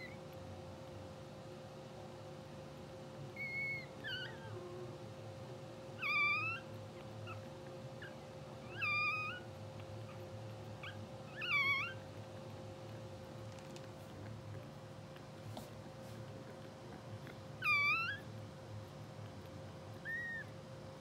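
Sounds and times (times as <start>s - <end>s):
puppies squeaking: 3.3s - 4.6s, 6.0s - 12.1s, 17.6s - 18.3s, 20.0s - 20.6s.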